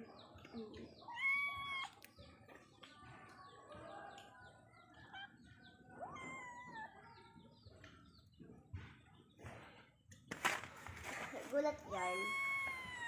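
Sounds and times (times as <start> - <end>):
birds chirping: 0.0 - 13.0
cat meowing: 1.1 - 2.0, 6.0 - 6.9, 12.0 - 13.0.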